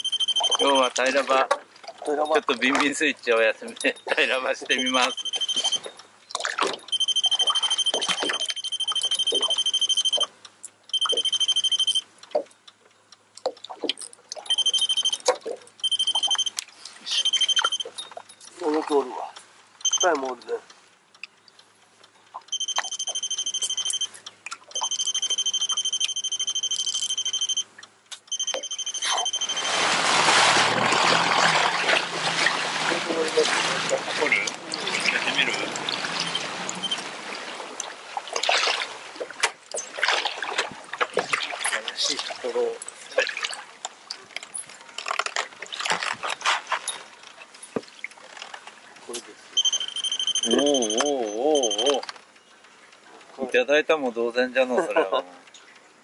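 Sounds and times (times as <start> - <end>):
electronic buzzer beeping: 0.0 - 0.9, 4.7 - 5.9, 6.9 - 10.3, 10.9 - 12.0, 14.5 - 16.6, 17.2 - 18.0, 19.8 - 20.2, 22.5 - 27.7, 28.3 - 29.9, 35.2 - 37.0, 49.6 - 52.0.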